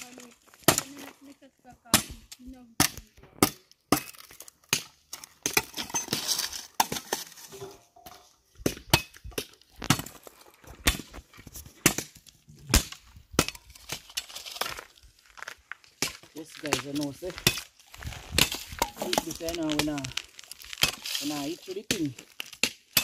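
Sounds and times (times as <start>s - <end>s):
machete chopping wood: 0.6s - 1.1s, 1.9s - 6.2s, 8.6s - 10.2s, 10.8s - 14.2s, 16.0s - 20.1s, 20.8s - 23.0s.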